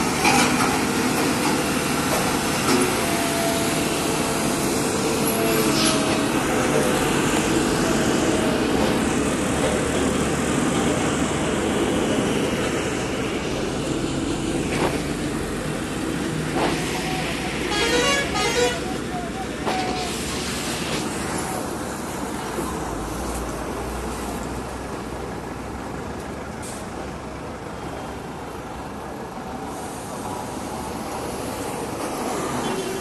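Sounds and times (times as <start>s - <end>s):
heavy trucks driving past: 0.0s - 33.0s
road roller diesel engine: 0.0s - 33.0s
vehicle horn: 17.6s - 20.0s.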